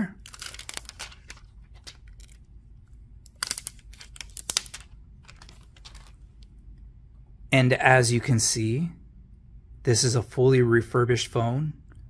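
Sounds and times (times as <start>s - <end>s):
plastic film crinkling: 0.2s - 2.5s, 3.3s - 6.4s.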